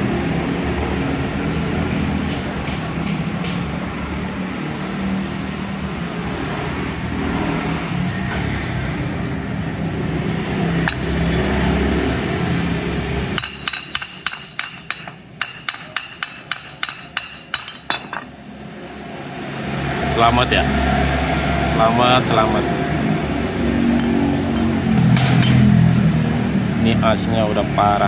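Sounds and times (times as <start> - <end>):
sharp metallic tool taps: 10.8 - 11.2, 13.4 - 18.3.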